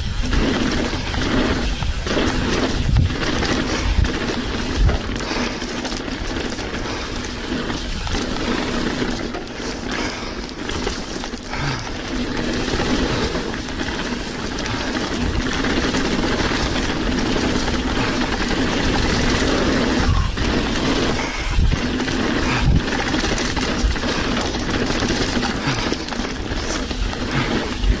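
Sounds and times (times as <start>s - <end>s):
wind noise on microphone: 0.0s - 9.3s, 12.3s - 28.0s
bike tyres rattling over dirt and rocks: 0.0s - 28.0s.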